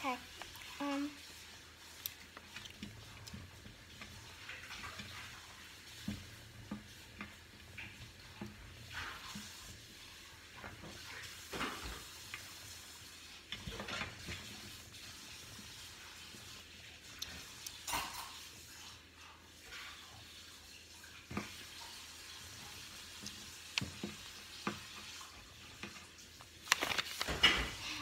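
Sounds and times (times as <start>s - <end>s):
paper packet rustling: 26.3s - 28.0s.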